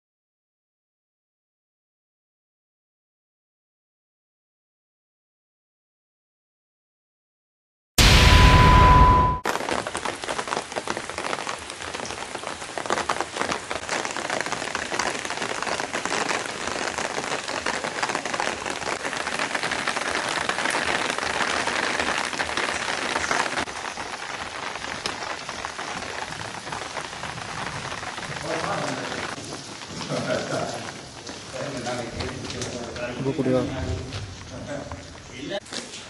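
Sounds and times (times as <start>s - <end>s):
steady rain falling: 9.4s - 36.0s.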